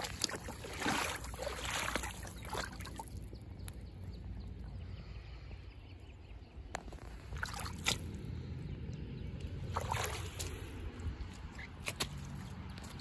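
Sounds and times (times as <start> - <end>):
footsteps on muddy ground: 0.0 - 3.4, 9.6 - 13.0.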